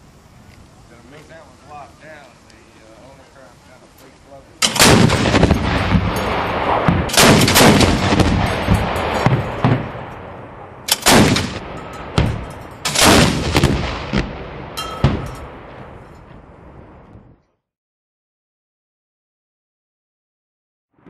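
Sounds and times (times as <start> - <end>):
autocannon firing bursts: 4.6 - 10.0, 10.9 - 14.3
rolling gunfire echo: 4.6 - 17.4.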